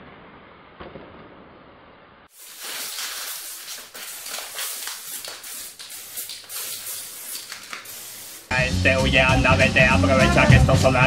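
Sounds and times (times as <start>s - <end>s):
spray paint can hissing: 2.3s - 8.5s.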